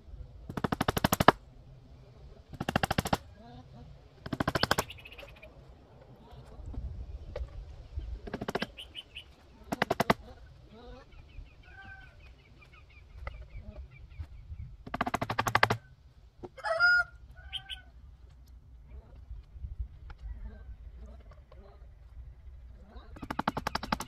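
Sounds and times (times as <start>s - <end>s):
chickens clucking: 3.1s - 18.0s
rapid clicking rattle: 23.2s - 24.0s.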